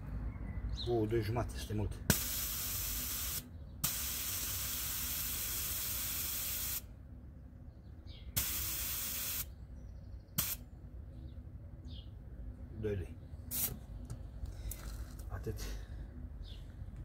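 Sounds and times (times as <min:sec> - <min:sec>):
compressed air hissing: 0:02.1 - 0:06.9, 0:08.4 - 0:09.5, 0:10.4 - 0:10.6, 0:13.5 - 0:13.8.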